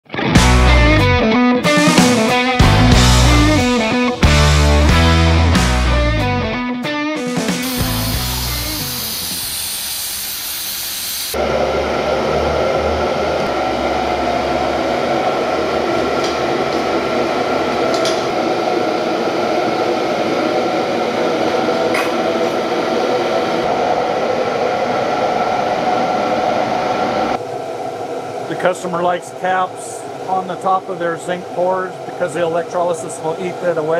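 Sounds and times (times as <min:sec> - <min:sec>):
aerosol spray can hissing: 0:07.6 - 0:11.4
machine whir with low hum: 0:07.6 - 0:33.9.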